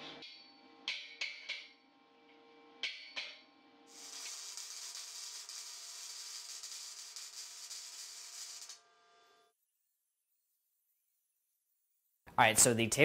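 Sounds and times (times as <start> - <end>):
welding arc crackling and sizzling: 3.9 - 10.7.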